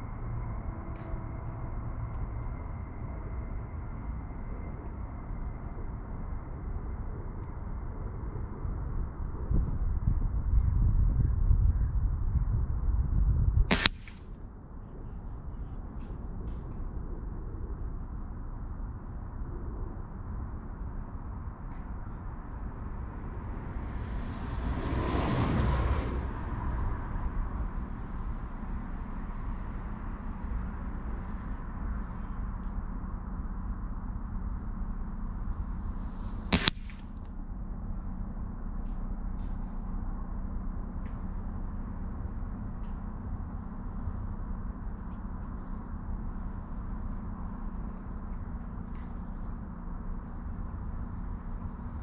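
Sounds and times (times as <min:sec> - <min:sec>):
faint hum: 0:00.0 - 0:52.0
low outdoor rumble: 0:00.0 - 0:52.0
vehicle passing: 0:23.7 - 0:27.7.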